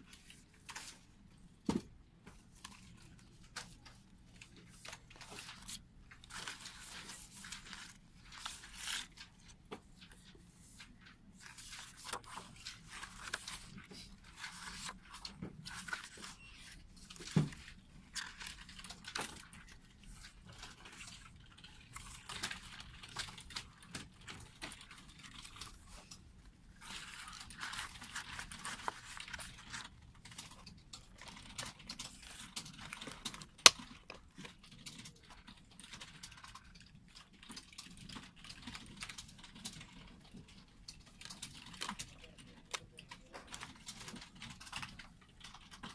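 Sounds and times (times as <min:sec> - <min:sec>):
paper pages rustling: 0:00.0 - 0:01.1, 0:01.7 - 0:36.6.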